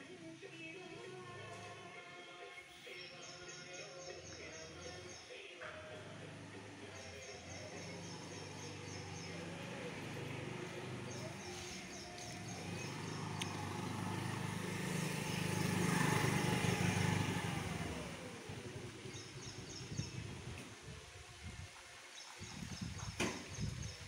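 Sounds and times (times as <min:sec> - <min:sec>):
vehicle passing by: 0:05.9 - 0:20.9.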